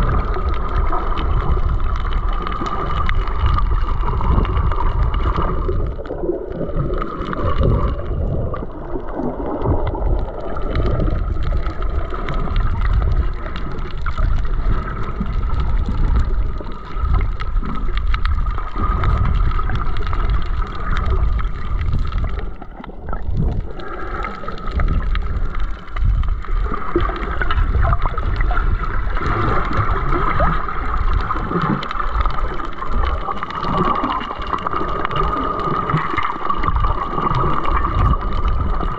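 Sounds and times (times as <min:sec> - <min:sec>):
underwater rumble and gurgling: 0:00.0 - 0:38.9.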